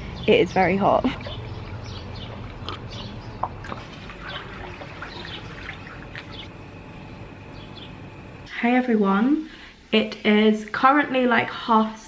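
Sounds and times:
small birds chirping: 0:00.0 - 0:06.6, 0:07.5 - 0:08.0
pool water lapping: 0:00.6 - 0:06.6.

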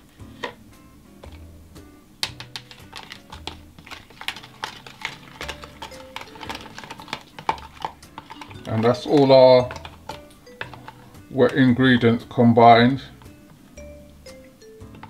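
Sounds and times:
metal spoon clicking in plastic jug: 0:02.2 - 0:11.0.

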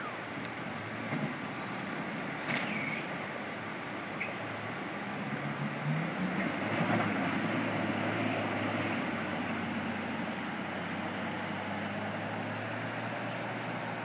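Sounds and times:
creek water rushing: 0:00.0 - 0:14.0
diesel engine under load: 0:04.5 - 0:14.0.

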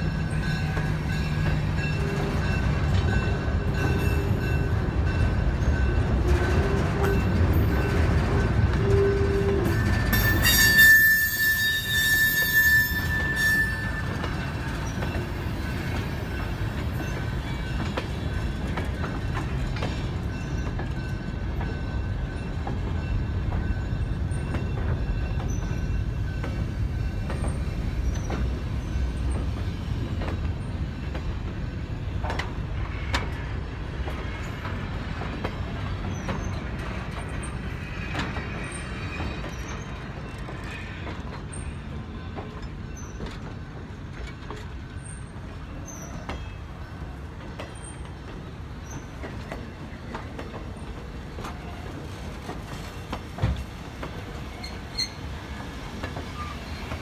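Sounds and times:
train wheels rumbling on rail: 0:00.0 - 0:57.0
high-pitched wheel squeal: 0:10.1 - 0:14.2.

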